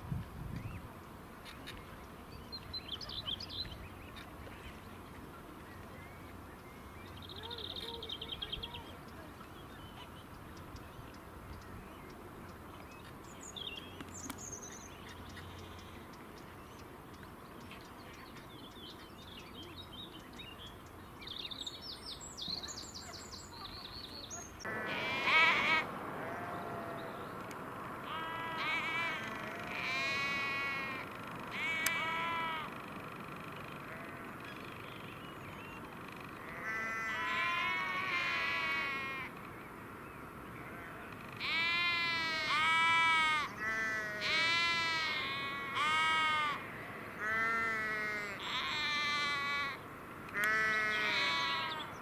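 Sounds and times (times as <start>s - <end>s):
small birds chirping: 0.6s - 24.7s.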